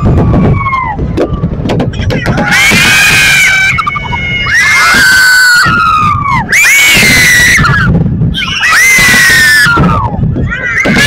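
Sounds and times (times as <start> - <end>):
spectators screaming: 2.2 - 11.0.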